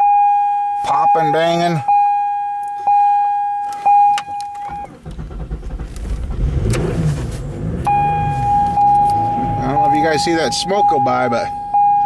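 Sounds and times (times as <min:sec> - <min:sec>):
car warning chime: 0:00.0 - 0:05.0, 0:07.8 - 0:12.0
rough car engine running: 0:04.6 - 0:11.7.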